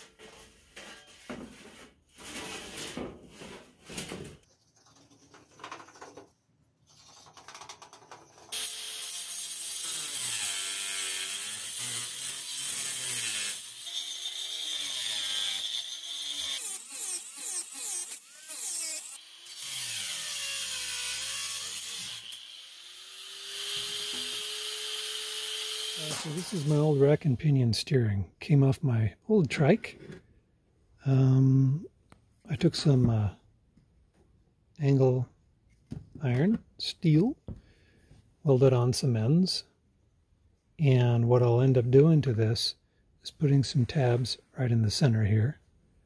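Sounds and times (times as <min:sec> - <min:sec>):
power tool cutting metal sheet: 0:08.5 - 0:27.0.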